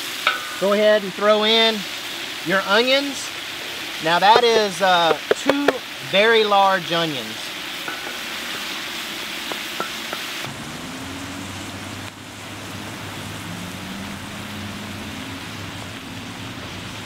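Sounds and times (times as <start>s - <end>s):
meat and onions sizzling: 0.0s - 17.0s
wooden spatula tapping: 4.3s - 5.8s, 9.4s - 10.3s.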